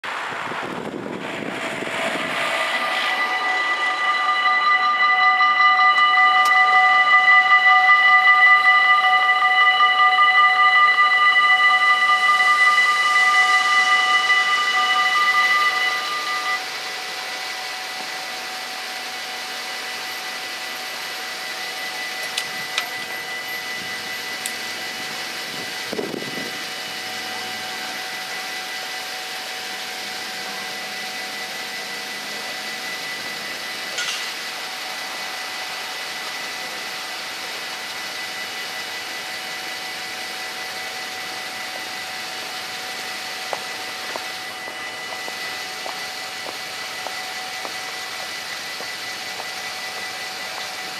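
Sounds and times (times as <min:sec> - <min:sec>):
street traffic hum: 0:00.0 - 0:20.5, 0:41.3 - 0:50.9
level crossing bells: 0:02.6 - 0:18.4.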